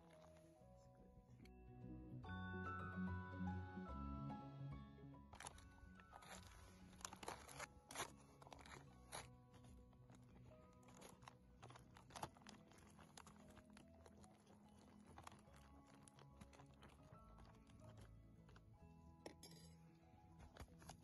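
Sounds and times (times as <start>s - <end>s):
foil pouch crinkling: 0.0s - 0.6s, 5.3s - 19.7s, 20.4s - 21.0s
faint background music: 0.0s - 21.0s.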